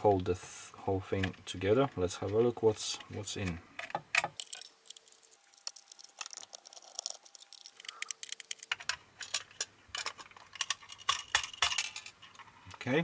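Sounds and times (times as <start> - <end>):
plastic clicks and rattles: 3.8 - 12.8.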